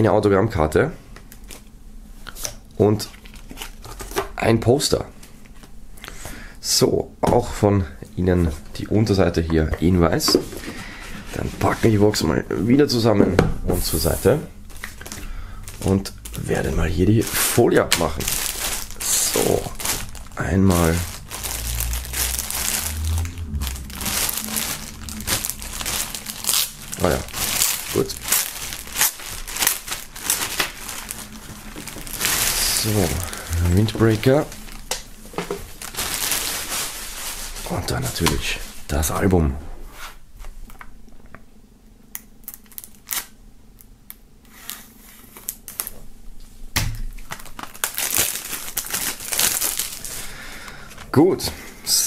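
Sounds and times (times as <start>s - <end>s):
plastic bag crinkling: 13.8s - 38.9s, 42.4s - 43.4s, 45.2s - 46.0s, 47.1s - 51.2s.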